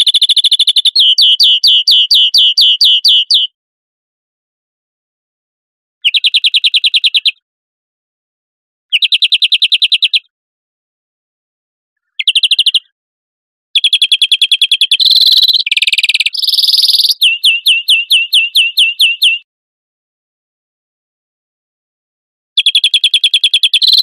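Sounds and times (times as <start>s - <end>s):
finch singing trills: 0.0s - 3.5s, 12.1s - 12.8s, 13.8s - 19.4s, 22.6s - 24.0s.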